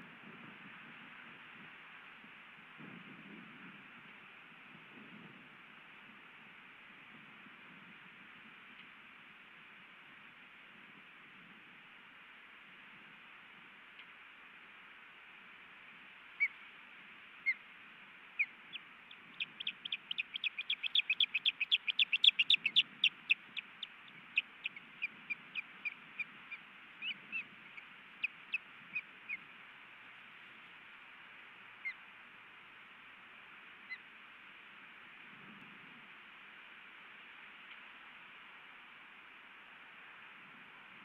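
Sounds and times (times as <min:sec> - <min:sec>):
osprey whistled chirps: 0:18.4 - 0:26.3.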